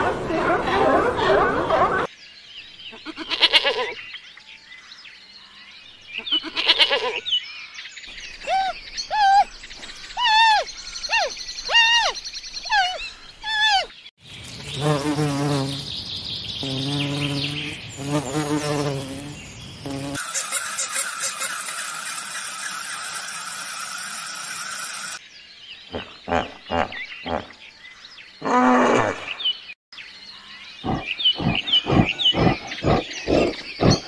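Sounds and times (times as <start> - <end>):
sheep bleating: 3.0 - 3.9
short high squeaky calls: 8.4 - 9.5, 20.2 - 25.2
honeybee buzzing: 14.7 - 15.9, 16.6 - 25.2.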